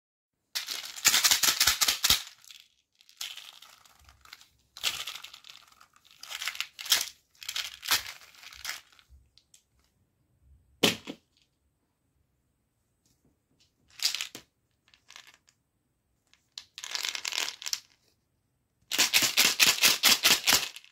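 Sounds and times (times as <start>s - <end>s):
plastic toy clicks and rattles: 0.6s - 2.5s, 18.9s - 20.9s.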